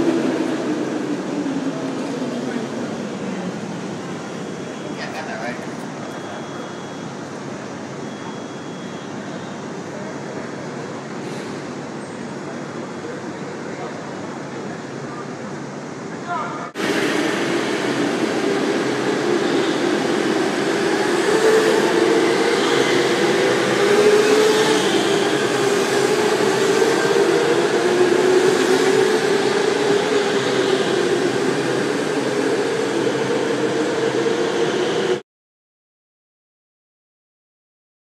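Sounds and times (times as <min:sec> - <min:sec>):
go-karts droning: 0:16.8 - 0:35.2.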